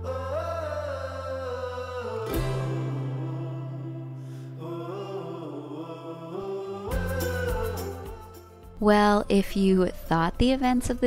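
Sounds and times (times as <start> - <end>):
slow melody over low chords: 0.0 - 8.8.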